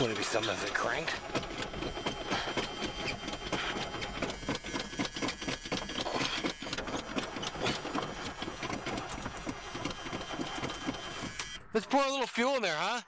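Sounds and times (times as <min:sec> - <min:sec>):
starter motor cranking engine: 0:00.0 - 0:12.2.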